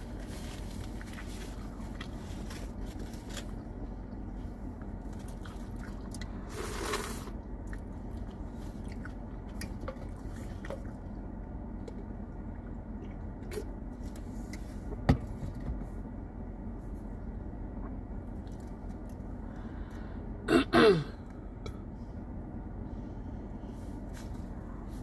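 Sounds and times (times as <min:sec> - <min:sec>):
car air conditioning blowing: 0:00.0 - 0:25.0
woman clearing her throat: 0:20.5 - 0:21.2.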